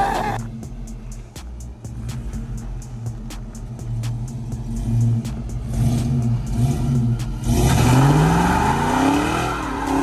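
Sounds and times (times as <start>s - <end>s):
car engine revving: 0.0s - 10.0s.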